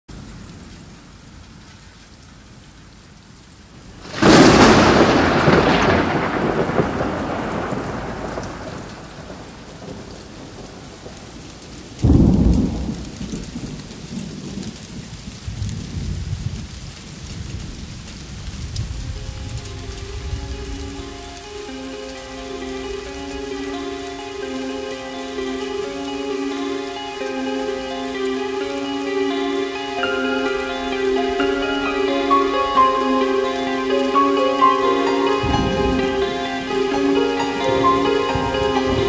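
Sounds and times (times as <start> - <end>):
steady rain: 0.0 - 39.0
thunderclap rumbling: 4.0 - 16.8, 17.4 - 26.1, 30.0 - 39.0.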